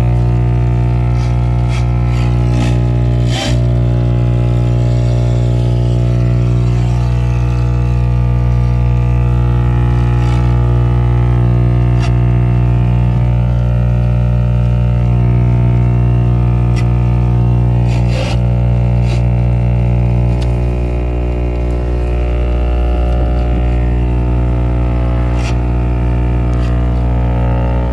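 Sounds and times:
low droning tone: 0:00.0 - 0:27.9.

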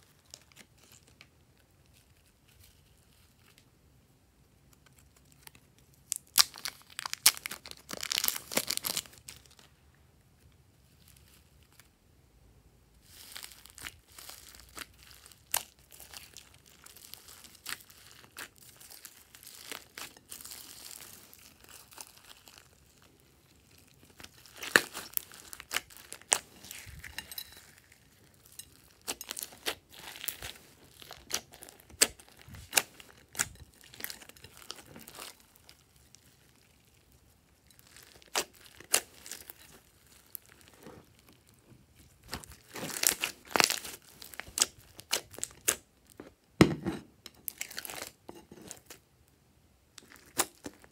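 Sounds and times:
plastic wrapper crinkling and tearing: 0:00.0 - 0:03.7, 0:04.7 - 0:09.7, 0:13.0 - 0:46.4, 0:47.4 - 0:49.0, 0:50.0 - 0:50.9.

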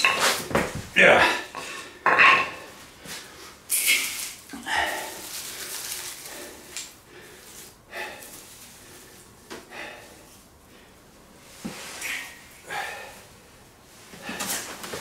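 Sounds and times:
wood shavings crumbled by hand: 0:04.9 - 0:06.9.

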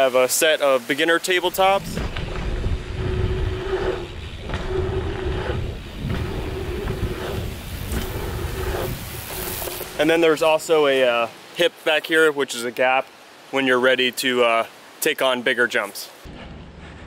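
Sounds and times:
bike tyre noise on dirt: 0:01.0 - 0:11.3
wind rumble on microphone: 0:01.5 - 0:10.0.

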